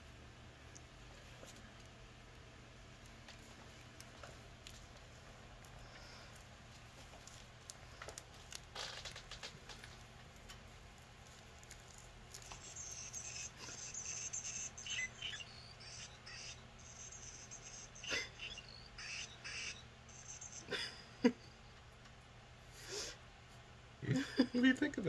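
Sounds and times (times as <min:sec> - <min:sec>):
high electronic chirps: 0:12.4 - 0:21.1.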